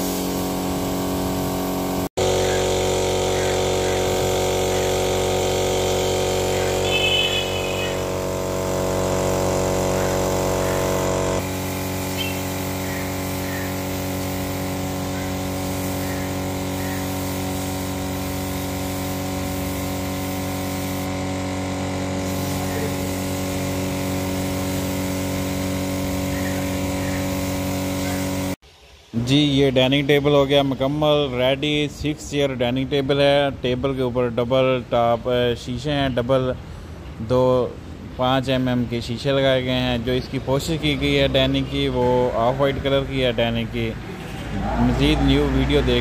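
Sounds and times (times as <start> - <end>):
air compressor humming: 0.0 - 29.4
brief high whistle: 6.8 - 8.0.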